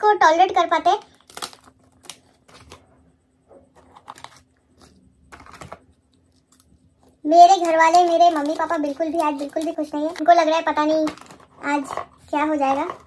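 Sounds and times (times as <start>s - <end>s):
foil packets crinkling: 1.0s - 2.8s, 3.8s - 10.3s.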